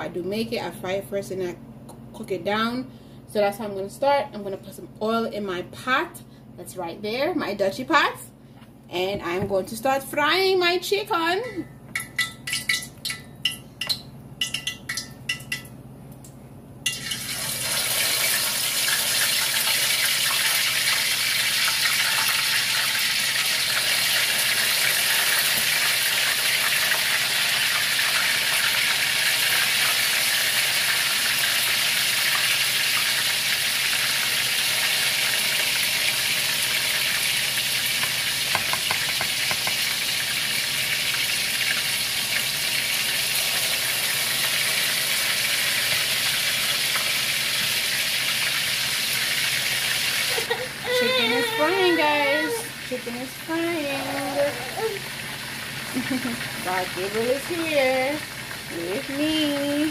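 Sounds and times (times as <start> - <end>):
chicken sizzling in hot oil: 16.9 - 54.2, 55.0 - 59.9.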